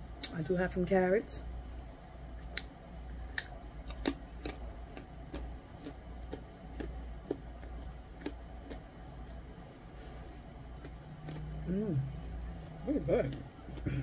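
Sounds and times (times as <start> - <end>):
carrot crunching: 2.5 - 9.4, 10.8 - 14.0.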